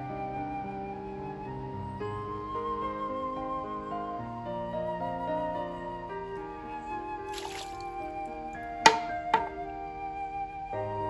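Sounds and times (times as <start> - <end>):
slow flute music: 0.0 - 11.0
water splashing from bamboo: 7.3 - 9.5.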